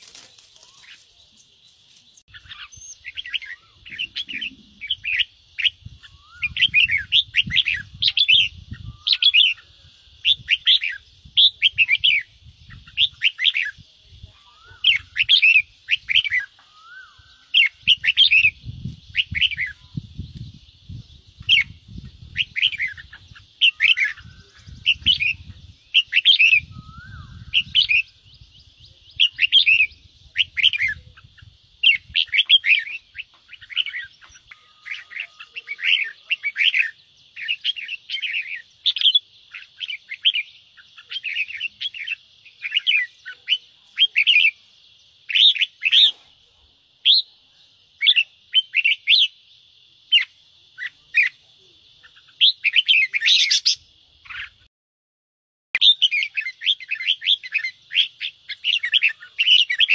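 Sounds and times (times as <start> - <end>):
bird chattering scold calls: 20.9 - 28.4, 50.1 - 54.7.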